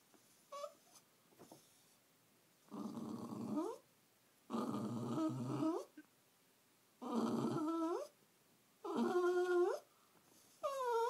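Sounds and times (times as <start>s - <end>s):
dog growling: 2.7s - 3.8s, 4.5s - 5.9s, 7.0s - 8.1s, 8.8s - 9.8s, 10.6s - 11.0s.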